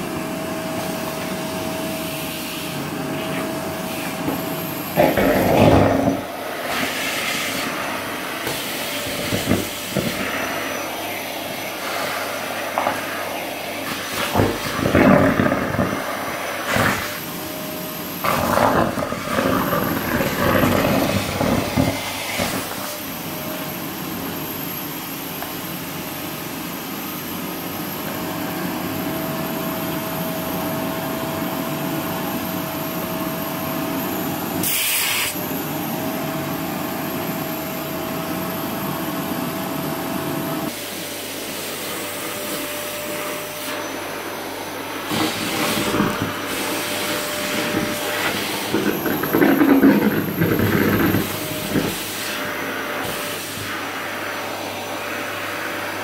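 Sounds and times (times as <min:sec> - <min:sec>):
vacuum cleaner motor whine: 0:00.0 - 0:56.0.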